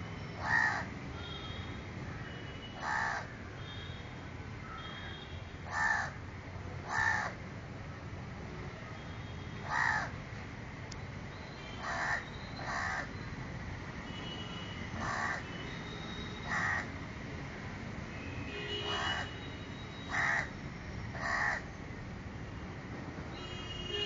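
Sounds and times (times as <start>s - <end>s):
crow cawing: 0.4s - 0.9s, 2.8s - 3.3s, 5.7s - 6.2s, 6.8s - 7.4s, 9.6s - 10.1s, 11.8s - 13.1s, 15.0s - 15.4s, 16.5s - 16.9s, 20.1s - 20.5s, 21.2s - 21.6s.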